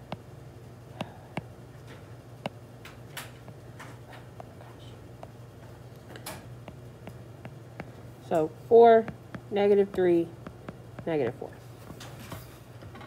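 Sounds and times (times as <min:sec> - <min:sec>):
taps on touchscreen: 0:00.0 - 0:00.2, 0:06.6 - 0:08.0, 0:09.1 - 0:11.2
low steady hum: 0:00.0 - 0:13.0.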